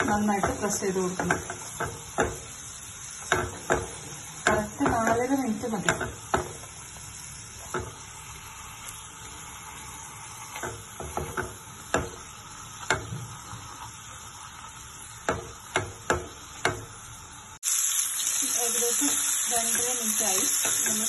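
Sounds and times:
spatula knocking and scraping pan: 0.0s - 8.1s, 10.5s - 13.8s, 15.2s - 17.0s
steaks sizzling in a pan: 0.0s - 21.0s.

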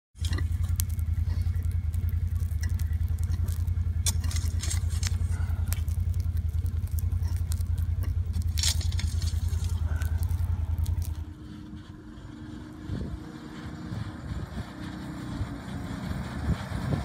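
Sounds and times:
engine running: 0.1s - 17.0s
hand tools scraping ground: 3.3s - 6.0s, 7.2s - 12.0s.

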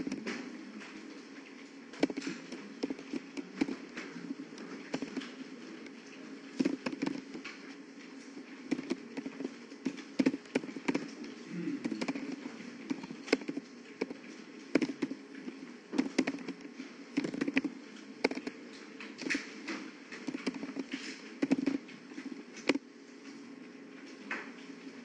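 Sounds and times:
faint room hum: 0.0s - 25.0s
keyboard typing: 8.6s - 11.2s, 11.8s - 18.6s, 20.2s - 22.8s.

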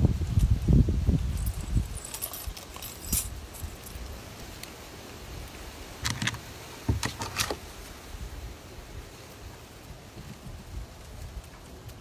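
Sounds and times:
light metallic jingling: 1.2s - 4.4s.

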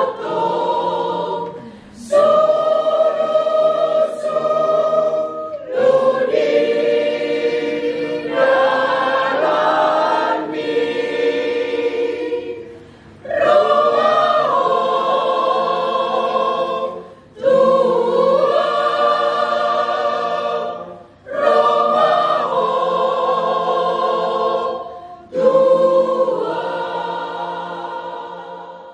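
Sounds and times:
mixed choir singing a cappella: 0.0s - 28.9s.

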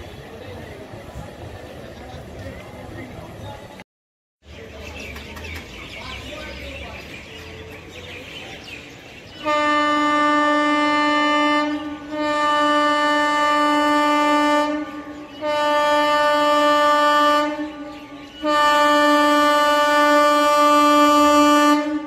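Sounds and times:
train horn blasts: 9.4s - 22.0s.

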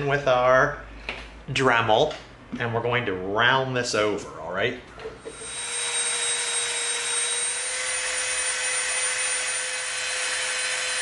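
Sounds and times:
rotary tool grinding foam: 5.2s - 11.0s.

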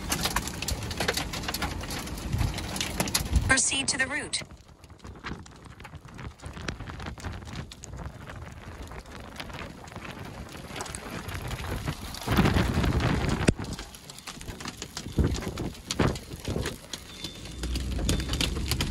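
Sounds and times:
rain and wind: 0.0s - 18.9s
low rumbling thunder: 17.3s - 18.9s.

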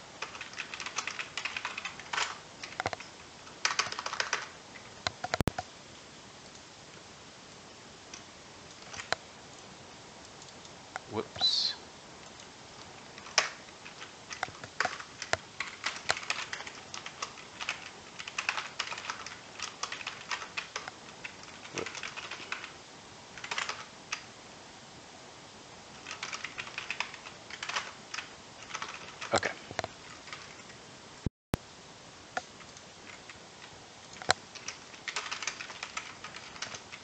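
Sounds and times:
typing on computer keyboard: 0.2s - 5.6s, 8.1s - 9.2s, 13.1s - 22.8s, 23.4s - 24.3s, 26.0s - 30.7s, 34.1s - 37.0s.

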